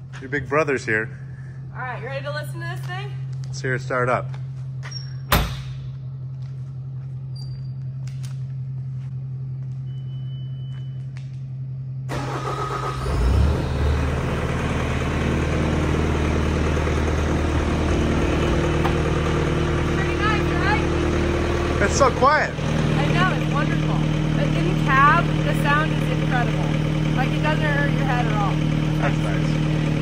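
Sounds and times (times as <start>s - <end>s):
diesel engine cranking and idling: 12.0s - 30.0s.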